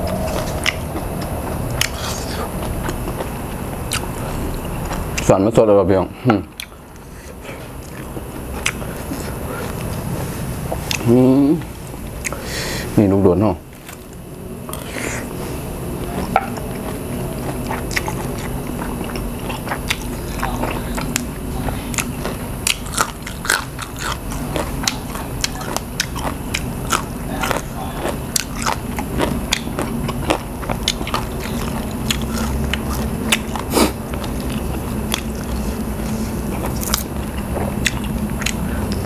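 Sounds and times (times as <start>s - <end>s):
person chewing crunchy food: 0.0s - 5.3s, 6.6s - 11.2s, 11.9s - 12.8s, 13.8s - 39.0s
low steady hum: 0.0s - 39.0s.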